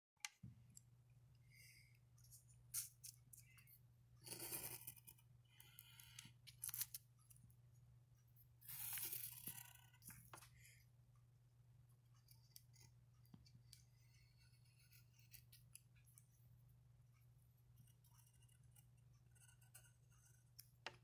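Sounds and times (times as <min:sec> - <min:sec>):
pencil scratching on paper: 0:02.3 - 0:06.2, 0:08.6 - 0:10.4, 0:12.2 - 0:16.3, 0:17.7 - 0:20.6.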